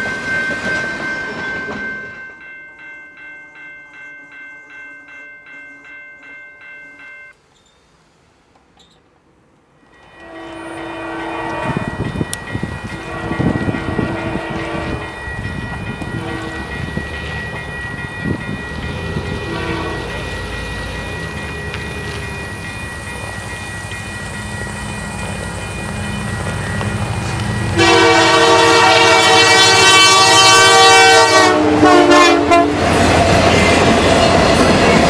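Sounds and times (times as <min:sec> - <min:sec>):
locomotive horn blasts: 0:10.0 - 0:12.0, 0:12.8 - 0:15.2, 0:16.0 - 0:16.7, 0:19.1 - 0:20.3, 0:27.7 - 0:33.0
crossing signal warning tone: 0:10.0 - 0:35.0
diesel locomotive rumble: 0:10.1 - 0:35.0.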